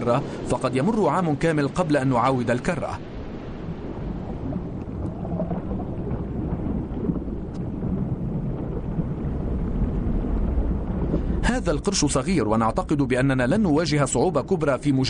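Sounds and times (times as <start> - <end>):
low underwater rumble: 3.0 - 14.0
faint clicks: 7.4 - 7.7.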